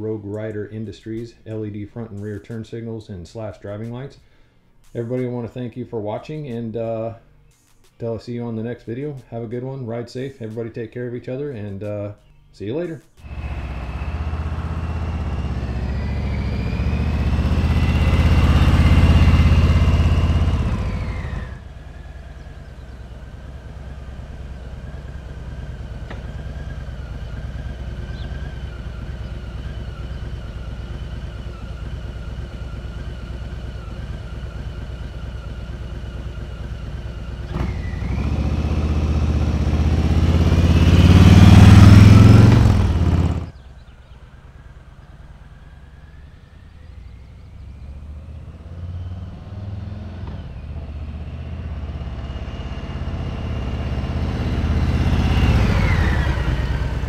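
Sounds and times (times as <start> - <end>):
motorcycle engine riding by: 13.2 - 57.0.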